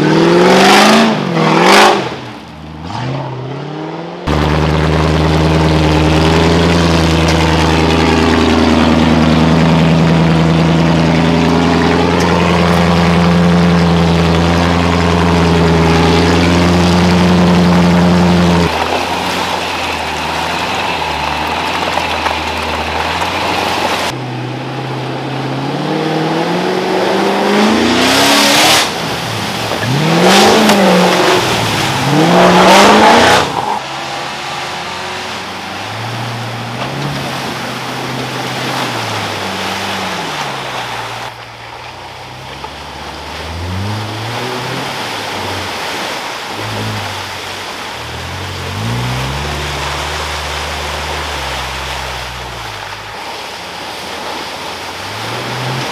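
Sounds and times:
off-road engines revving: 0:00.0 - 0:55.9
tyres churning through mud: 0:00.0 - 0:55.9.

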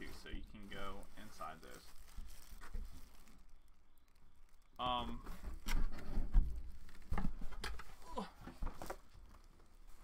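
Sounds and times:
fabric case rustling: 0:00.0 - 0:03.7
dull bumps and knocks: 0:05.2 - 0:09.1.

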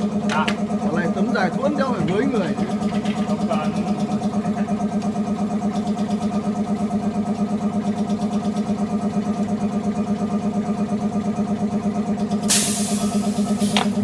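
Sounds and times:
glass-cutting machine humming: 0:00.0 - 0:05.1, 0:12.8 - 0:14.0.

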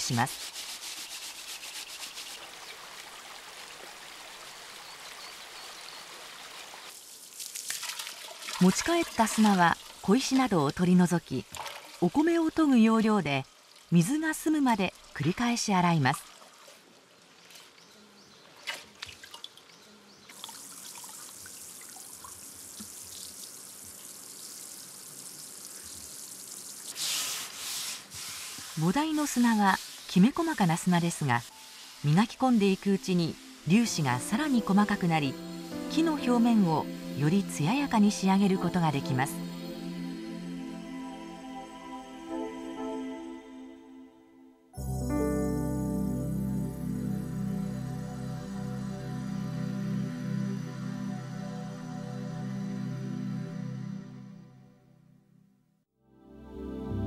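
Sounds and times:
sand shaken in a sieve: 0:00.0 - 0:02.5, 0:26.9 - 0:31.4
running water hissing: 0:00.0 - 0:10.9, 0:20.3 - 0:39.8
shallow stream flowing: 0:00.0 - 0:35.3
water sloshing in pot: 0:07.3 - 0:10.9.

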